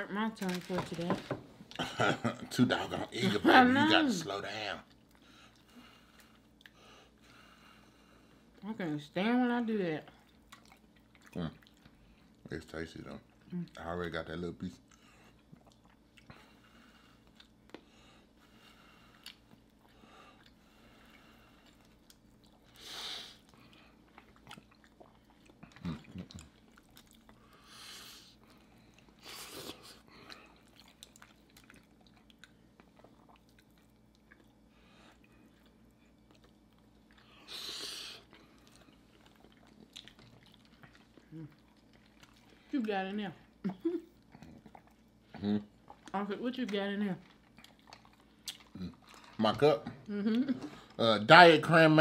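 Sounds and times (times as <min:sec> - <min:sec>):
people chewing food: 0:00.2 - 0:52.0.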